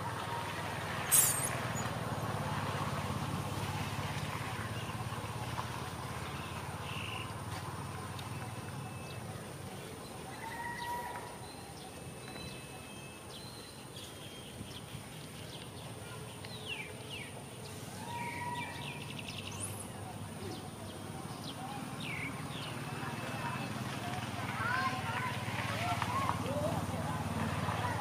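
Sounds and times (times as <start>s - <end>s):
bird chirps and whistled calls: 1.1s - 1.9s.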